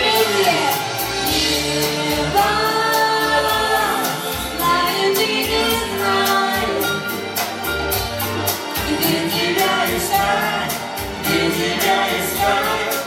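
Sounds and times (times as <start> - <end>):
woman singing: 0.0 - 7.2
percussion steady beat: 0.0 - 13.0.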